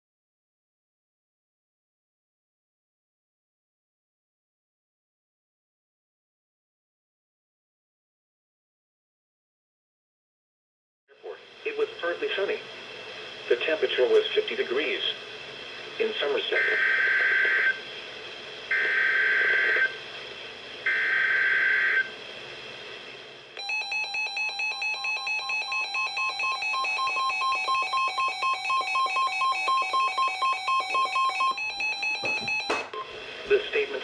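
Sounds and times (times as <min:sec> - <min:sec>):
steady warning tone: 0:16.5 - 0:17.8, 0:18.7 - 0:20.0, 0:20.8 - 0:22.2, 0:23.6 - 0:33.2.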